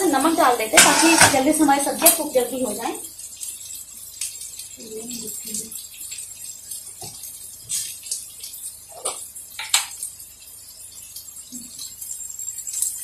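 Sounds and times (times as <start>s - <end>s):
kitchen containers knocking and clinking: 0.7s - 2.3s.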